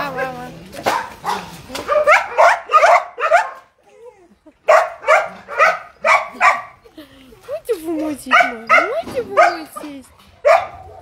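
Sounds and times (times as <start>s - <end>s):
dogs barking: 0.0s - 3.8s, 4.6s - 6.8s, 8.2s - 11.0s.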